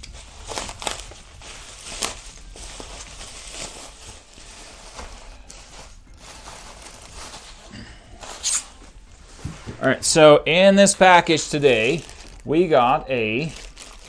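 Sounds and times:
bubble wrap crinkling: 0:00.0 - 0:14.0.

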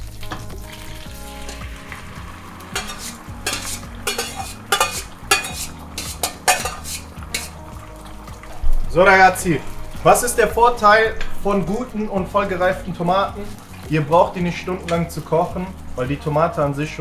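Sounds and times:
tomatoes sizzling in oil: 0:00.0 - 0:17.0
metal spoon scraping bowl: 0:02.7 - 0:07.6.

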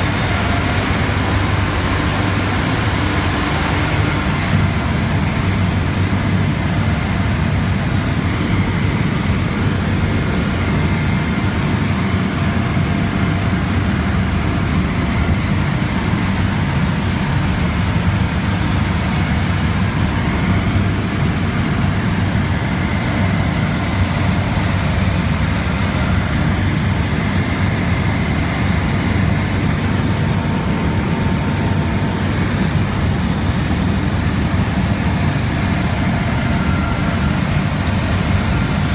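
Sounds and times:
deep mechanical rumble: 0:00.0 - 0:38.9.

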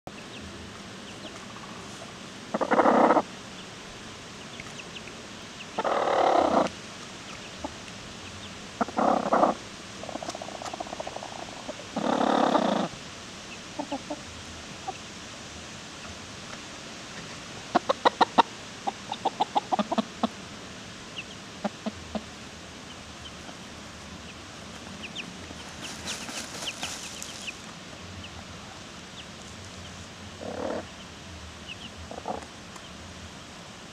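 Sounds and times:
faint high chick peeps: 0:00.1 - 0:03.7, 0:04.4 - 0:15.1, 0:17.7 - 0:20.4, 0:21.1 - 0:33.0
hens clucking: 0:01.1 - 0:03.3, 0:04.5 - 0:15.1, 0:17.2 - 0:20.4, 0:21.2 - 0:22.3, 0:23.2 - 0:31.1, 0:31.7 - 0:32.9.

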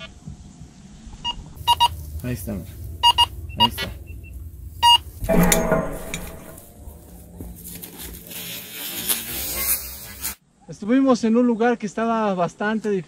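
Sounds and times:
rustling and scraping: 0:01.6 - 0:10.4.

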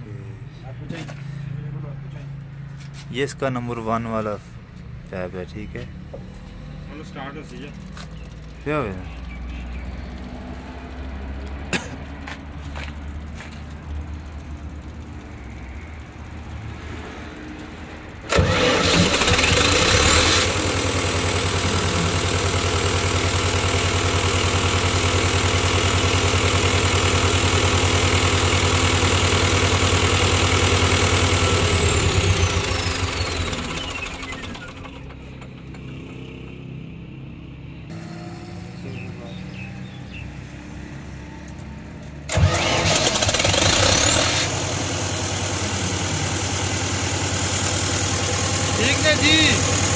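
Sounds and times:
diesel engine running: 0:04.2 - 0:49.9
diesel engine cranking and starting: 0:17.7 - 0:36.7, 0:41.0 - 0:49.9.

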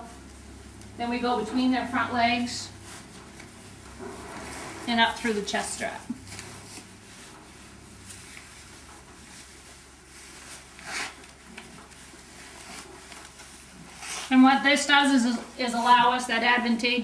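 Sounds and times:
strap rustling and scuffing: 0:02.8 - 0:14.4.

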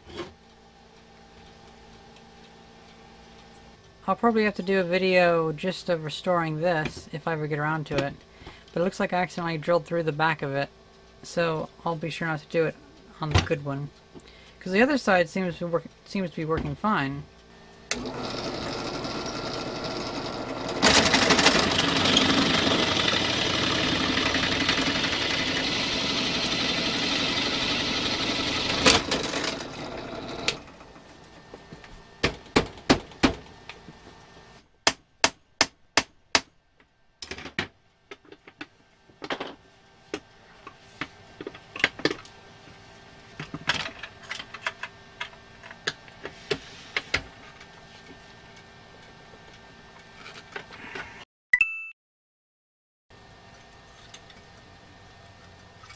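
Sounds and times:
drill press cutting metal: 0:17.9 - 0:30.8.

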